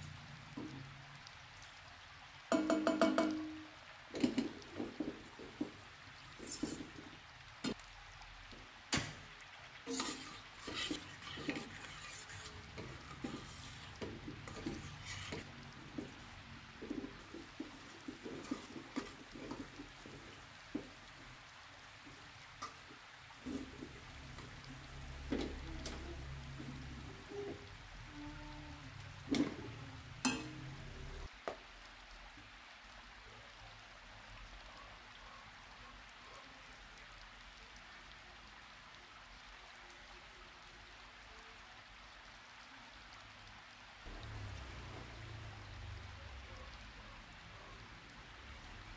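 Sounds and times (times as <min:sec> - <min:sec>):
faint steady hiss: 0:00.0 - 0:48.9
whisk scraping a metal pot: 0:09.9 - 0:20.8.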